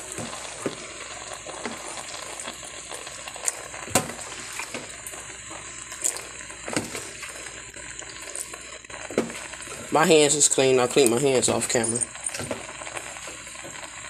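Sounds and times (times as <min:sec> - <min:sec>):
liquid sizzling and bubbling: 0:00.0 - 0:14.0
sharp knocks and pops: 0:03.8 - 0:04.9, 0:06.0 - 0:07.0, 0:09.1 - 0:09.4.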